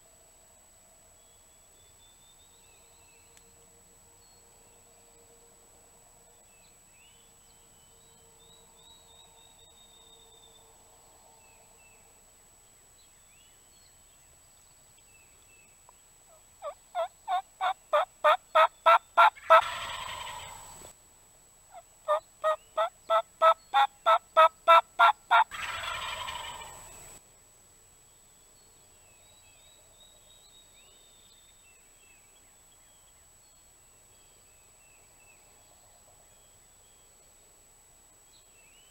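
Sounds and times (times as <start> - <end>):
turkey yelps: 16.6 - 20.6, 22.1 - 26.8
turkey gobble: 16.6 - 20.7, 22.1 - 27.0.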